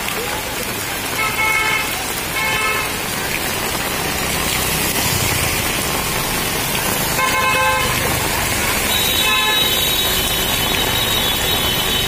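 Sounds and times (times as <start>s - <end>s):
heavy rain on a wet street: 0.0s - 12.0s
vehicle passing through water: 0.6s - 12.0s
vehicle horn toot: 8.9s - 12.0s.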